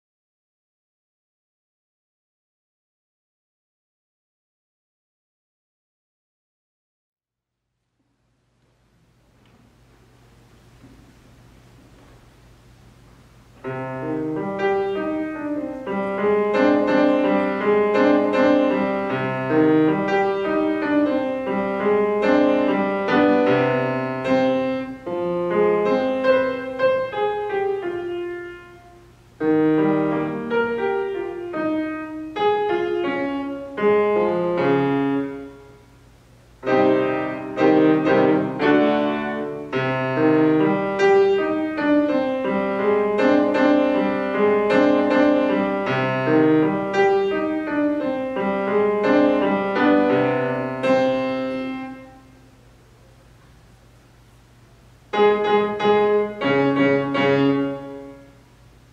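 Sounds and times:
grand piano playing: 0:13.5 - 0:52.7, 0:55.1 - 0:58.9.

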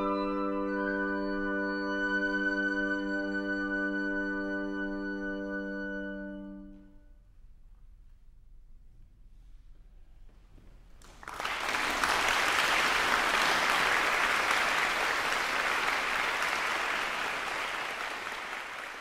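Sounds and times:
audience applauding: 0:11.0 - 0:19.0.

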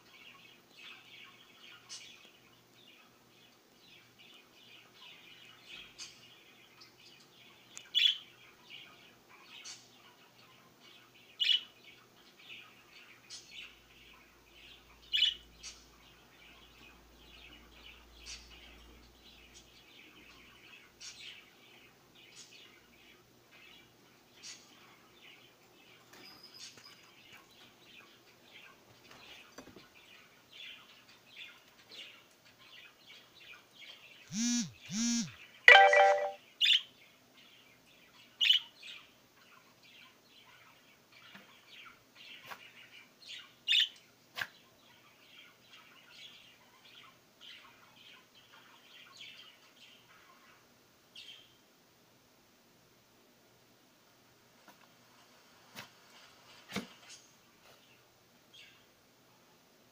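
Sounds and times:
loud pitched sound: 0:34.3 - 0:36.4.

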